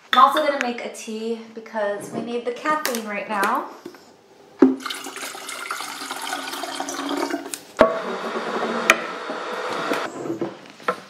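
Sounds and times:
water pouring into a kettle: 4.8s - 7.6s.

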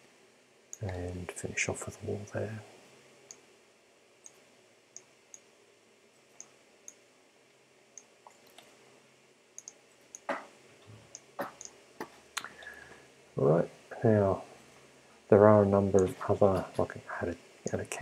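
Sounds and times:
computer mouse clicks: 9.6s - 10.4s.

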